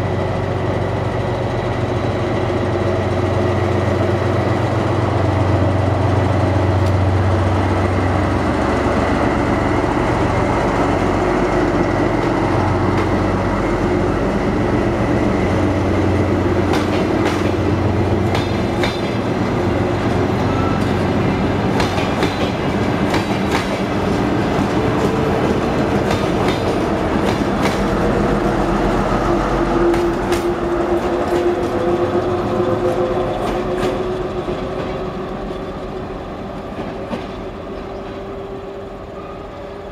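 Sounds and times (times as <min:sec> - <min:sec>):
train wheels clicking on rails: 0:00.8 - 0:39.8.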